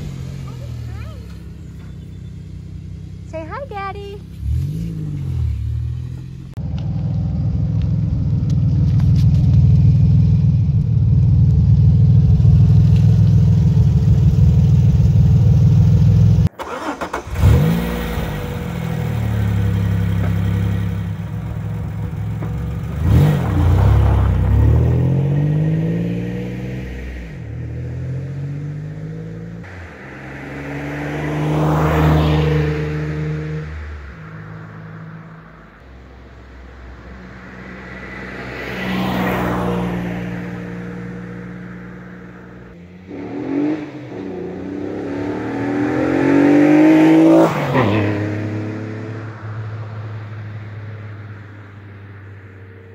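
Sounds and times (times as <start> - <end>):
car exhaust rumble: 0.0 - 30.6
engine revving: 2.6 - 7.6, 12.1 - 34.7, 37.6 - 49.5
car passing by: 29.6 - 35.5, 36.7 - 42.3, 43.1 - 52.9.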